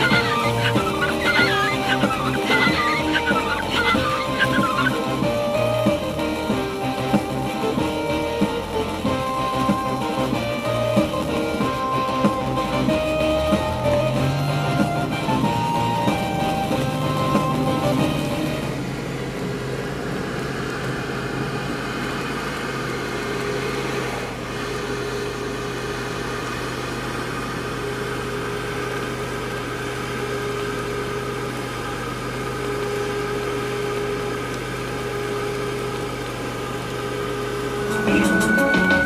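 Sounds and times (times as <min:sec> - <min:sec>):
car engine and road hum: 0:00.0 - 0:39.0
faint high whine: 0:36.9 - 0:39.0.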